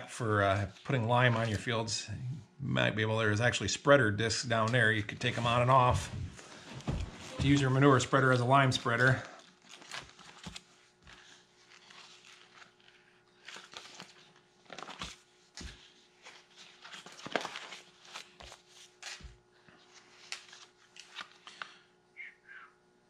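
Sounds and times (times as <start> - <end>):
plastic sleeves crinkling: 4.8 - 21.8.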